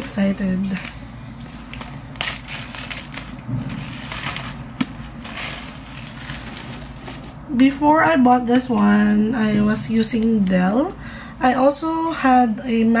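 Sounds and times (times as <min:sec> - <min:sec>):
plastic shrink wrap crinkling: 0:00.6 - 0:07.5.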